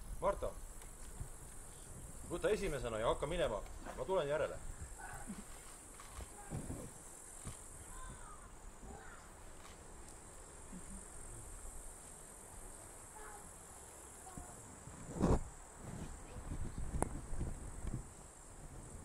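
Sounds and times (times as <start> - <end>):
crickets chirring: 0.0 - 19.0.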